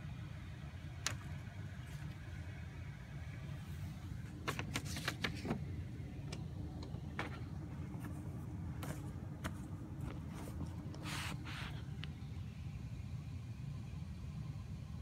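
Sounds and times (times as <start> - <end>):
steady low rumble: 0.0 - 15.0
phone and paper handling clicks: 4.3 - 5.7.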